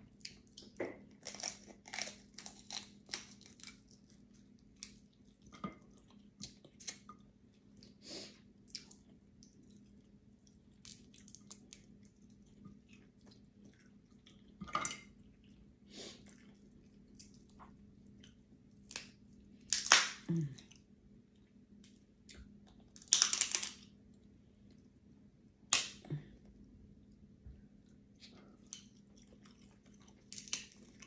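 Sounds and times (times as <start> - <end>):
chewing: 8.6 - 14.6, 27.8 - 31.0
crab shell cracking: 18.9 - 20.2, 23.0 - 23.8, 30.3 - 31.0.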